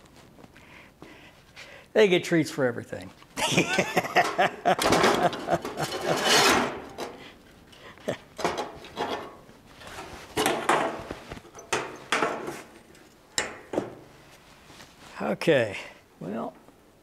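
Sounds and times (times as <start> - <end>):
sheet metal scraping: 4.2 - 7.2
sharp clicks and knocks: 10.4 - 14.0.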